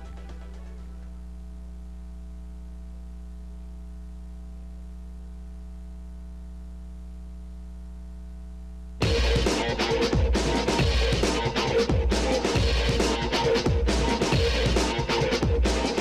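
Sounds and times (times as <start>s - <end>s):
low electrical hum: 0.0s - 9.0s
electronic music with heavy beat: 9.0s - 16.0s.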